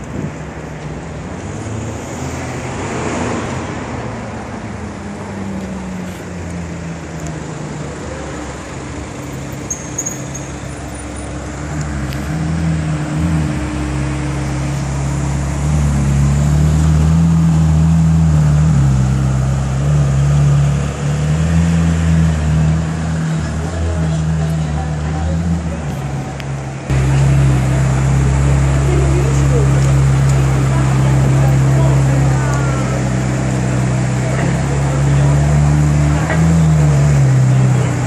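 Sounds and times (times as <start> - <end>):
car engine at low revs: 11.2 - 38.0.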